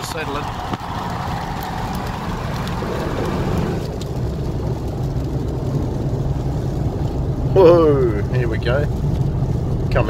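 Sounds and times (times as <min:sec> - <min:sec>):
wind rushing: 0:00.0 - 0:09.9
engine and tyre rumble: 0:00.0 - 0:10.0.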